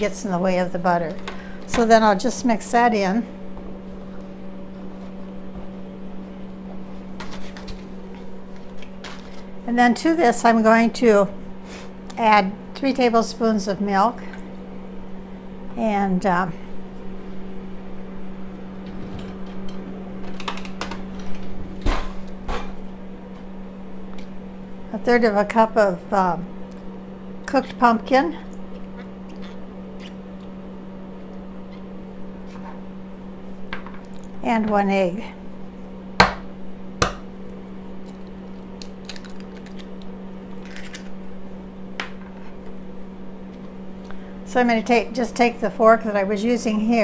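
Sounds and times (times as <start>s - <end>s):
steady low hum: 0.0s - 47.0s
egg cracking on cup rim: 38.8s - 40.0s.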